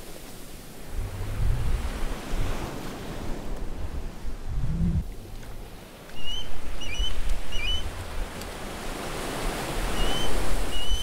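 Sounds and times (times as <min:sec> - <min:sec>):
waves: 0:00.0 - 0:11.0
wind: 0:00.0 - 0:11.0
low hum: 0:04.3 - 0:05.2.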